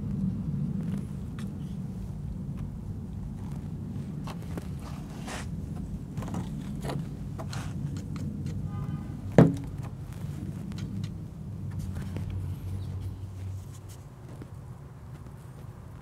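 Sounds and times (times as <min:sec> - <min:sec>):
plastic pipe clicks and scrapes: 0:04.2 - 0:08.6.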